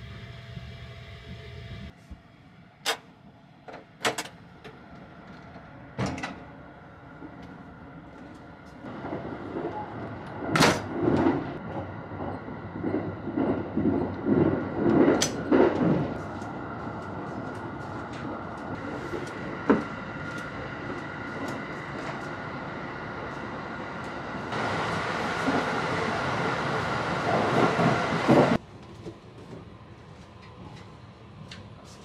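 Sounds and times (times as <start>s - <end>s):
constant whine: 0.0s - 25.6s
train running noise: 0.0s - 32.0s.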